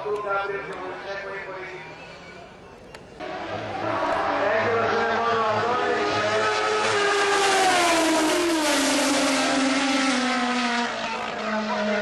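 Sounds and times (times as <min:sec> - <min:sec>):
drag racing car engine passing: 0:03.2 - 0:12.0.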